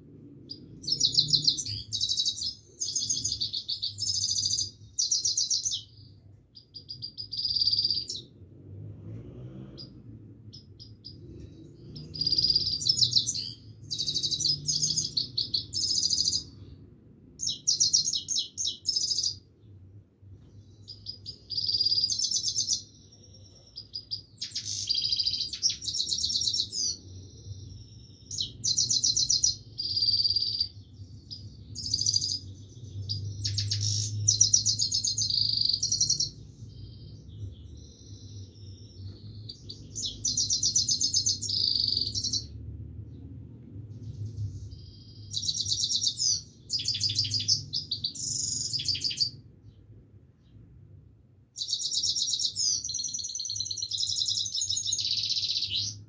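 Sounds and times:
finch twittering song: 0.3 - 8.4, 9.6 - 16.8, 17.4 - 19.8, 20.4 - 43.2, 43.9 - 50.6, 51.6 - 56.0.

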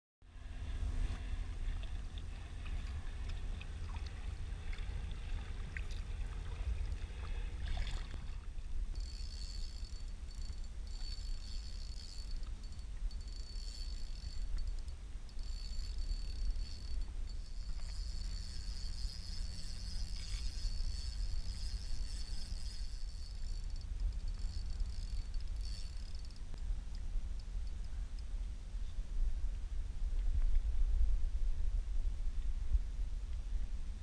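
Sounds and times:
low rumble: 0.2 - 34.0
fishing reel whirring: 0.4 - 28.0
water lapping against kayak hull: 1.2 - 8.8.

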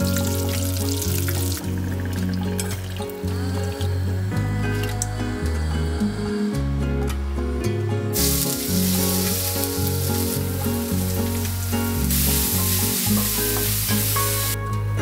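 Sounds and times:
background music: 0.0 - 15.0
food sizzling in hot oil: 8.2 - 14.6.

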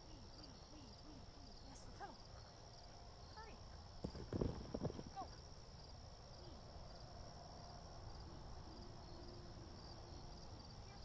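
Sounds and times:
crickets and insects chirping: 0.0 - 11.0.

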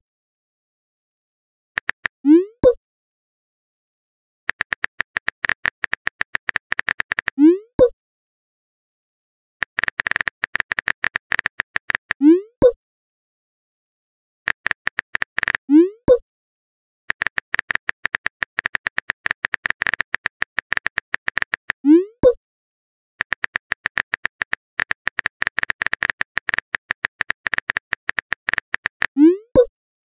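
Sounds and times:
keyboard typing clicks: 1.8 - 2.8, 4.5 - 7.9, 9.6 - 12.8, 14.5 - 16.2, 17.1 - 22.4, 23.2 - 29.7.

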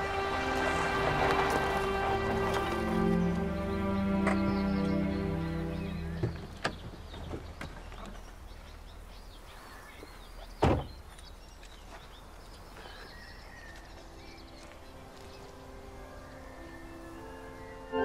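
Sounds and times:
organ music: 0.0 - 6.8, 14.6 - 18.0
birds chirping: 0.0 - 18.0
car door shutting: 10.6 - 11.0.

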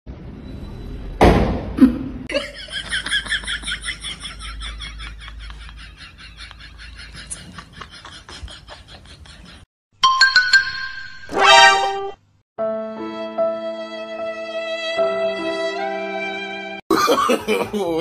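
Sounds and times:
person laughing: 1.8 - 9.6, 16.9 - 18.0.

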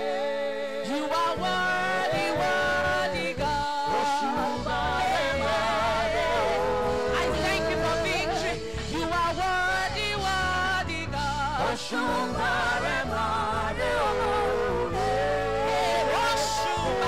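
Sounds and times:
backing singers: 0.0 - 10.8, 11.4 - 17.0
band accompaniment with bass: 1.2 - 17.0
woman singing with vibrato: 7.0 - 9.3.

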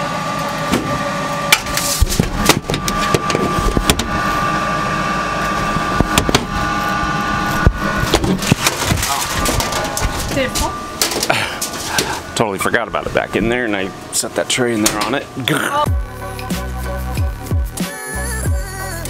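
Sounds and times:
steady machine hum: 0.0 - 19.0
metal trays clanking in cabinet: 8.1 - 13.3.

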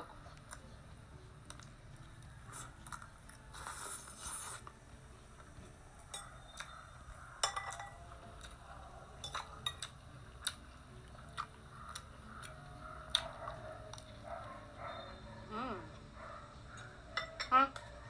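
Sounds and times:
cutlery clinking on plates: 6.1 - 6.8, 7.4 - 8.0, 16.8 - 17.9.

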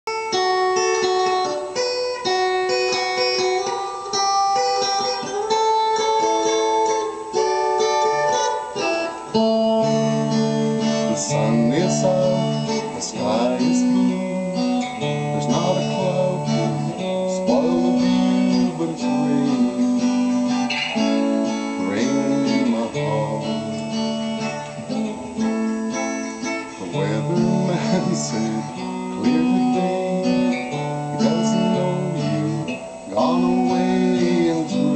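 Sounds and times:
electric guitar: 0.0 - 34.9
man singing: 9.8 - 25.5, 26.4 - 34.9.

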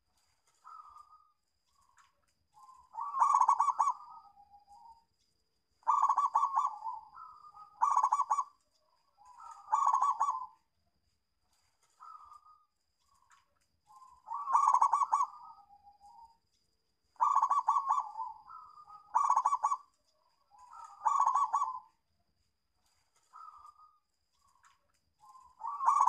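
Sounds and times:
dove cooing: 0.6 - 1.3, 2.6 - 4.9, 5.8 - 8.6, 9.2 - 10.6, 12.0 - 12.7, 13.9 - 16.3, 17.2 - 19.9, 20.5 - 22.0, 23.3 - 24.0, 25.2 - 26.0.

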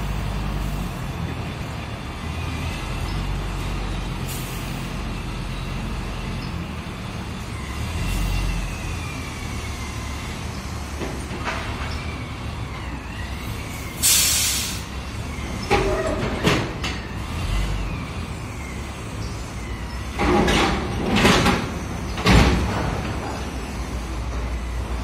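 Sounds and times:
diesel machinery rumbling: 0.0 - 25.0
air hiss burst: 14.0 - 14.9.

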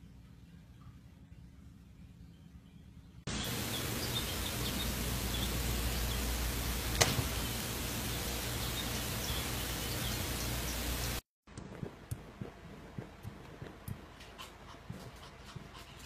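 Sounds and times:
faint bird chirps: 0.0 - 6.4
steady hiss and low hum: 0.0 - 16.0.

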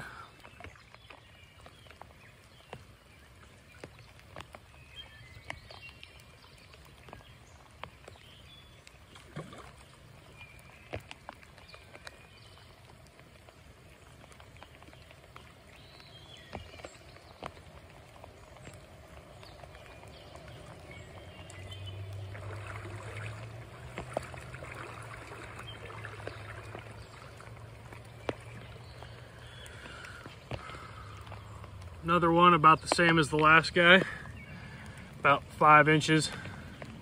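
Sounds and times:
birds chirping: 0.0 - 37.0
faint rain on a creek: 0.0 - 37.0
raindrop ticks: 0.0 - 37.0.

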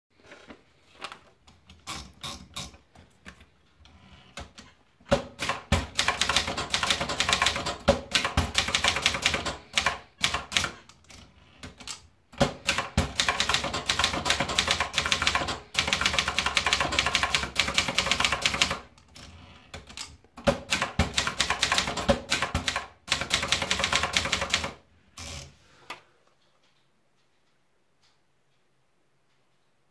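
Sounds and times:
paper feeding clicks: 4.4 - 18.8
typewriter typing: 4.4 - 25.5.

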